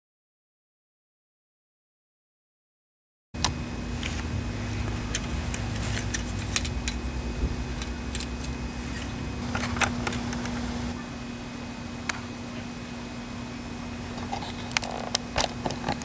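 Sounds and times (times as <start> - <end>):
steady low hum: 3.4 - 16.0
model parts clicking and rattling: 5.0 - 7.0, 7.7 - 10.6.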